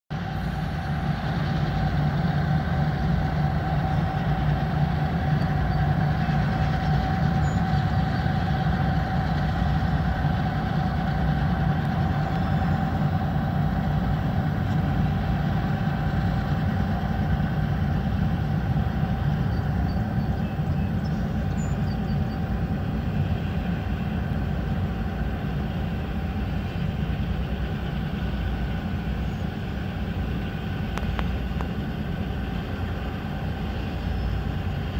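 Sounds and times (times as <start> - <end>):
diesel locomotives droning: 0.1 - 34.9.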